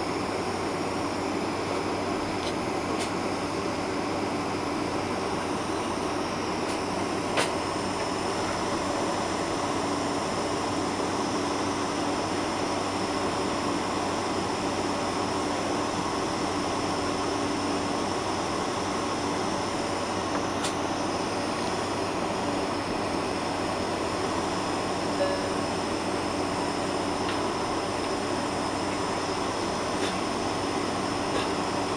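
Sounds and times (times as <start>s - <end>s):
air conditioning: 0.0s - 31.9s
aircraft engine hiss and hum: 0.0s - 31.9s
faint steady tone: 25.1s - 25.8s.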